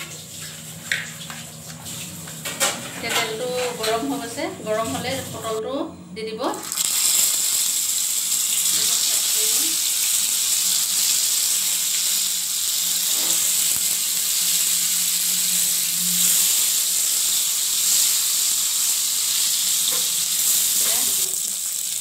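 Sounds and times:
vegetables sizzling in hot oil: 6.6 - 22.0.

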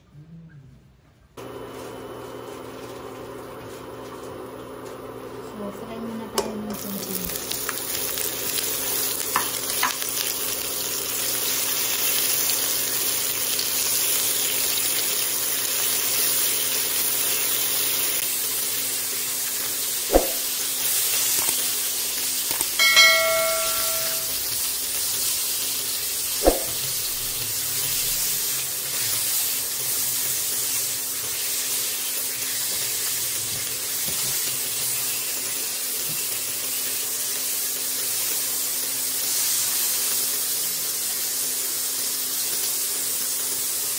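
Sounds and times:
sausage sizzling in oil: 6.4 - 43.9
spatula knocking against pan: 22.8 - 24.3
short bell-like chime: 22.8 - 24.4.

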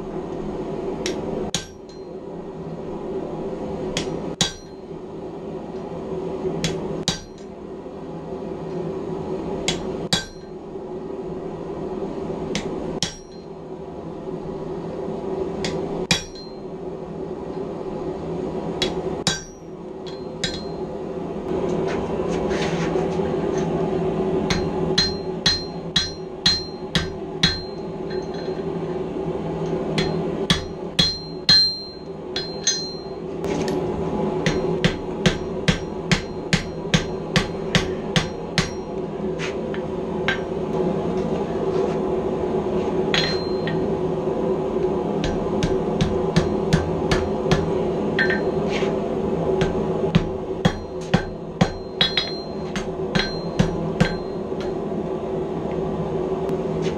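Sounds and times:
steady low hum: 0.0 - 56.9
hammer striking steel on anvil: 1.0 - 2.2, 3.9 - 4.9, 6.6 - 7.5, 9.7 - 10.6, 12.5 - 13.6, 15.6 - 16.7, 18.8 - 20.9, 24.5 - 28.7, 30.0 - 33.2, 34.4 - 40.6, 43.1 - 43.9, 45.2 - 48.9, 49.6 - 54.8.

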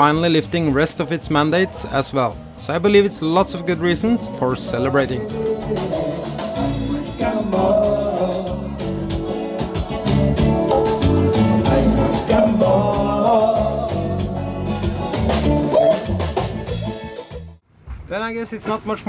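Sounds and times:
live band playing: 0.0 - 17.6
steady drum beat: 2.7 - 17.5
man singing: 3.1 - 9.1, 10.7 - 14.8.

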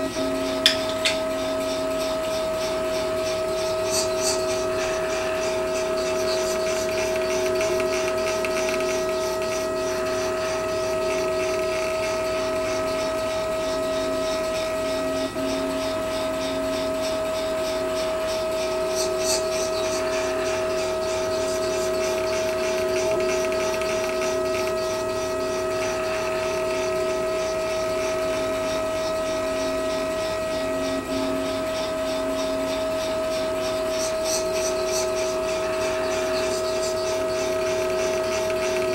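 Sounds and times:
stepper motors whining: 0.0 - 38.9.

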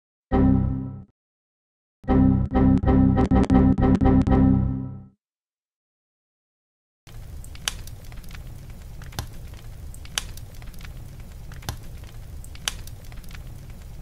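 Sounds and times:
fire crackling and popping: 7.1 - 14.0.

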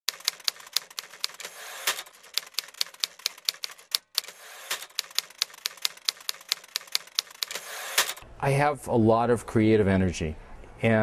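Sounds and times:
typewriter keys clacking: 0.1 - 8.2
typewriter carriage rasping slide: 0.5 - 8.2.

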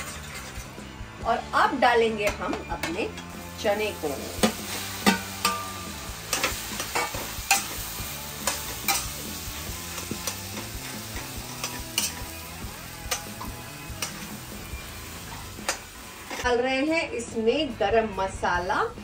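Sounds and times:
oil sizzling: 0.0 - 16.7
spatula scraping and knocking pan: 4.4 - 12.4.

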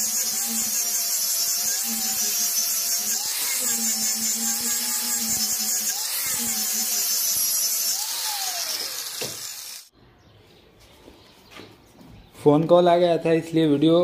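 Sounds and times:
angle grinder sanding wood: 0.0 - 9.9.

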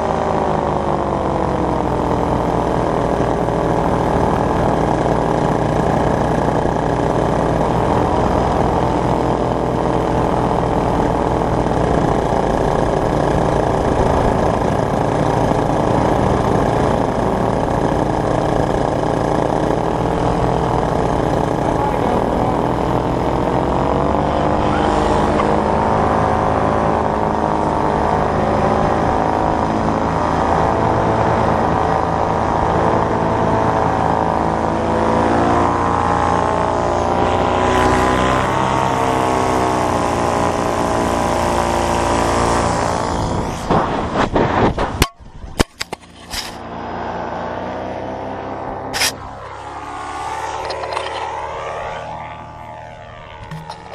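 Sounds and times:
paramotor engine and propeller: 0.0 - 53.9
sharp knocks and clatters: 50.6 - 51.3, 53.4 - 53.9.

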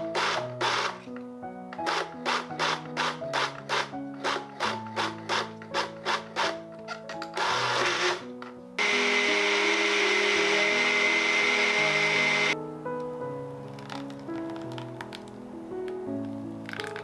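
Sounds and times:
background music: 0.0 - 17.0
blender whining: 7.4 - 8.2, 8.8 - 12.6.

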